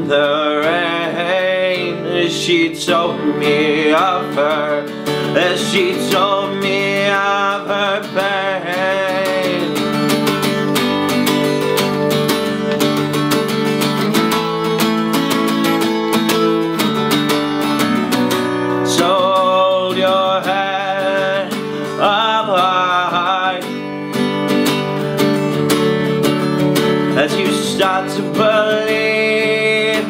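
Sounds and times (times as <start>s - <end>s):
wordless voice holding notes: 0.0s - 11.8s, 18.8s - 23.8s
acoustic guitar strumming: 0.0s - 30.0s.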